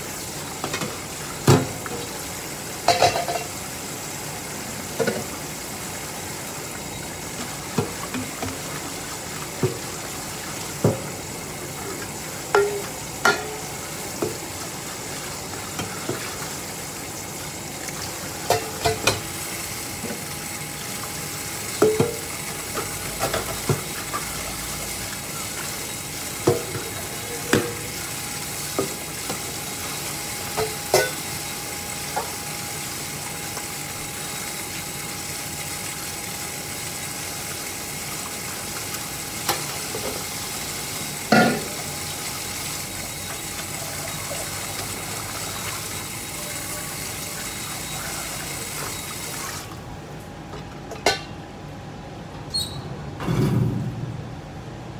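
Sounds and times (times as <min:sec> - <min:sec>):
water spraying into metal sink: 0:00.0 - 0:49.7
metal bowls clanking: 0:02.9 - 0:03.5, 0:12.6 - 0:13.7, 0:30.6 - 0:31.2.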